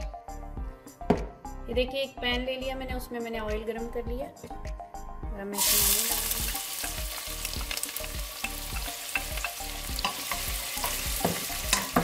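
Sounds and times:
onions sizzling in oil: 5.6 - 12.0
spatula clicking and scraping pot: 7.6 - 12.0.

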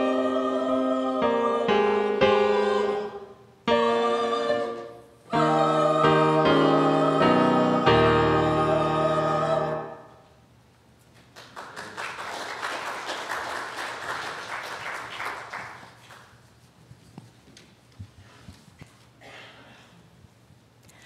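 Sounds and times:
choir singing a chord: 0.0 - 10.3
keyboard chord: 3.7 - 10.1
congregation applauding: 11.2 - 16.4.

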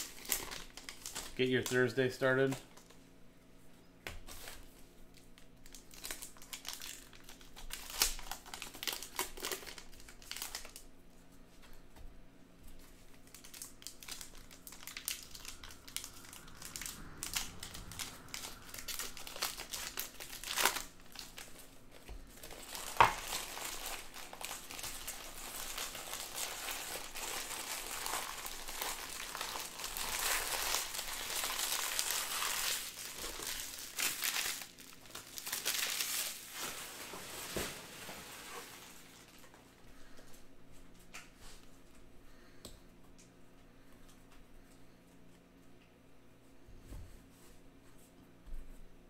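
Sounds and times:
plastic wrapping crinkling and tearing: 0.0 - 3.0, 4.3 - 10.9, 12.8 - 39.5.

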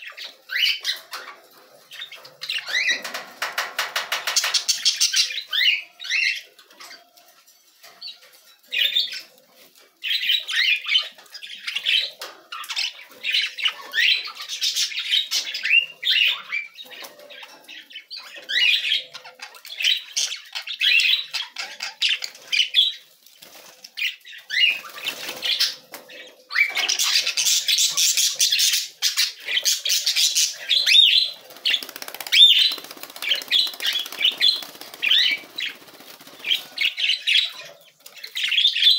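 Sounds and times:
budgerigars chattering: 24.1 - 38.9.

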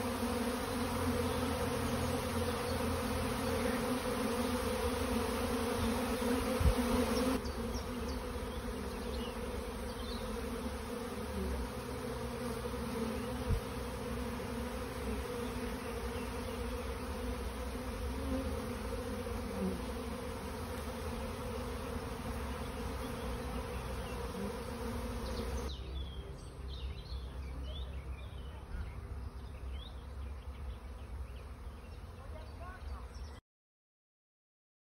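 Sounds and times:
bee swarm buzzing: 0.0 - 25.8.

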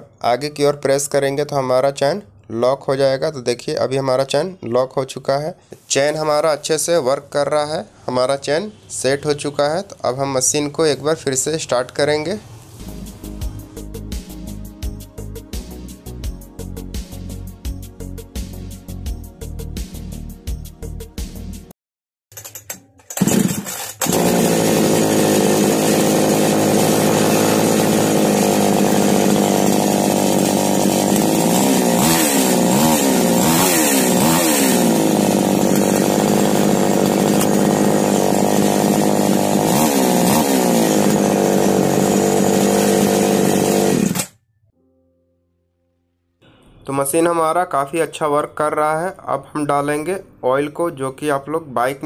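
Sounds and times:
chainsaw engine revving: 23.1 - 44.4.

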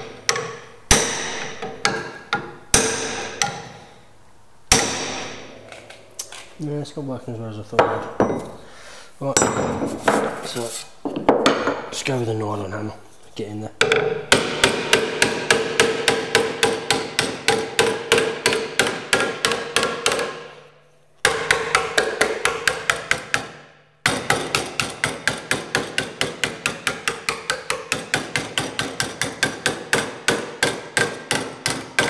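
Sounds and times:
mallet hammering sheet metal: 0.0 - 3.8, 4.7 - 5.6, 13.8 - 32.0.

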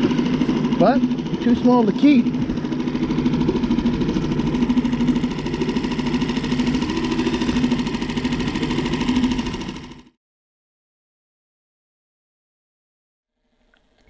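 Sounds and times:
outboard motor running: 0.0 - 10.2.

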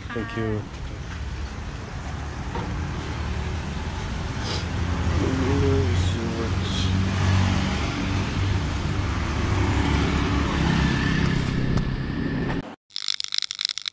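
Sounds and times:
scooter engines passing: 1.0 - 11.7.

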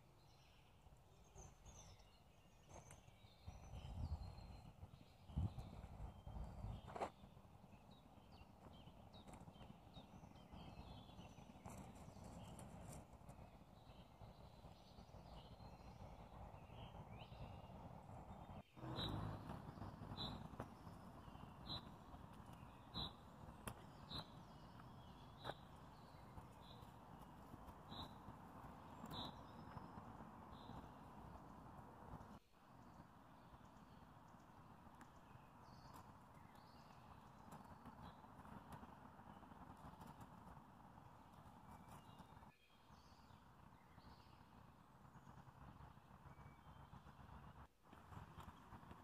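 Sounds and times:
faint birdsong: 0.0 - 49.0
footsteps on dry dirt path: 20.2 - 29.9.

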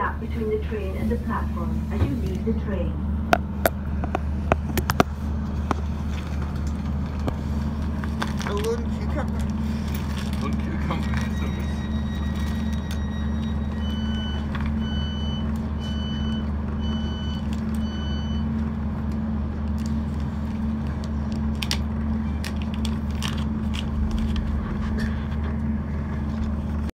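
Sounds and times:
train engine humming: 0.0 - 26.9
short warning beeps: 11.3 - 18.5.

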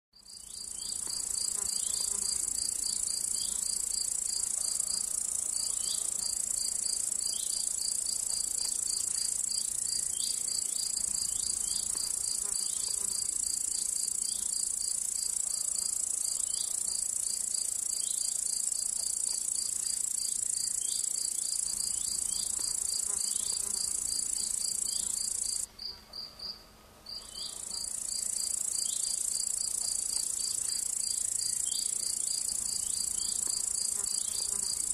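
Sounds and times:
crickets chirping: 0.2 - 26.5, 27.1 - 34.9
insect rapid ticking: 0.3 - 25.7, 27.6 - 34.9.

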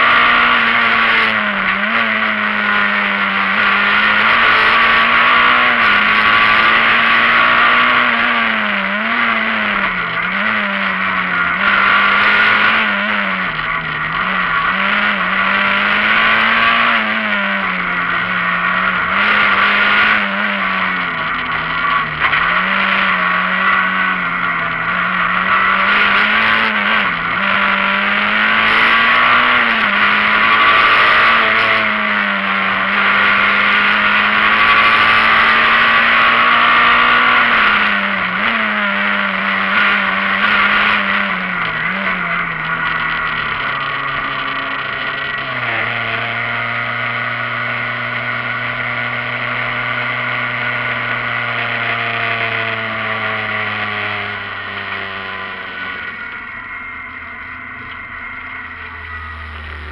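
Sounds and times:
loud road noise: 0.0 - 59.9
rally car engine revving high: 0.0 - 59.9.

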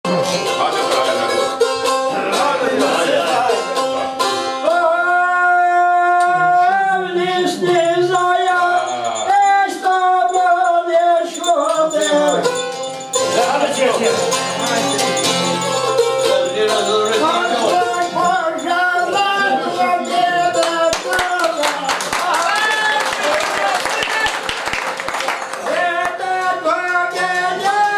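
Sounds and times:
plucked lute: 0.1 - 5.0, 6.2 - 21.7, 25.8 - 27.9
man singing: 4.6 - 12.6, 13.2 - 22.0, 25.6 - 27.9.

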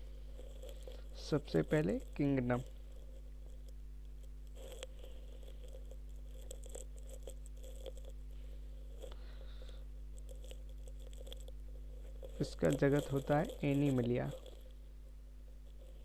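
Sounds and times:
steady low hum: 0.0 - 16.0
pen scratching on paper: 4.5 - 8.2, 10.2 - 14.6.

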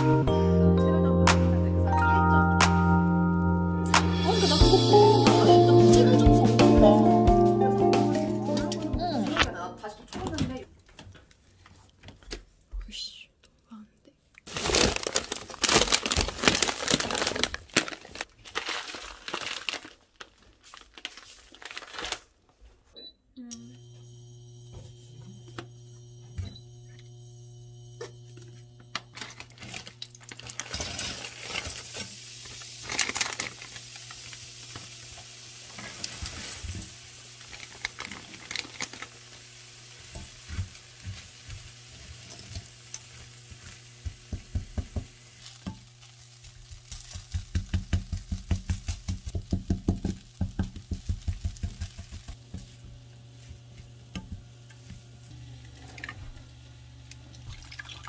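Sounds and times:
fried rice sizzling in a wok: 29.1 - 55.4.

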